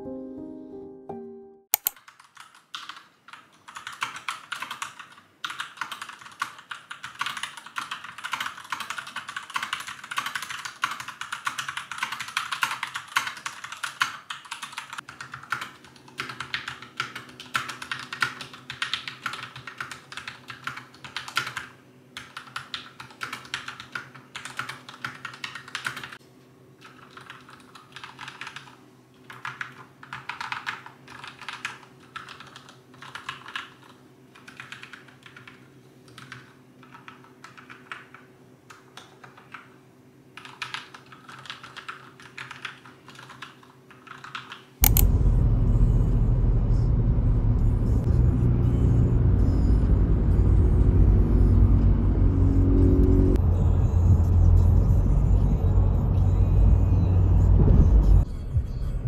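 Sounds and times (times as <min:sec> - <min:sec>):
typing on keyboard: 0:01.8 - 0:26.2, 0:26.8 - 0:39.8, 0:40.4 - 0:45.1.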